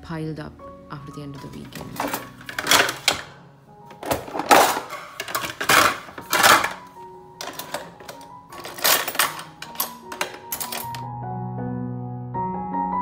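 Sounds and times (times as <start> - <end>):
dishes and cutlery clattering: 1.5 - 11.1.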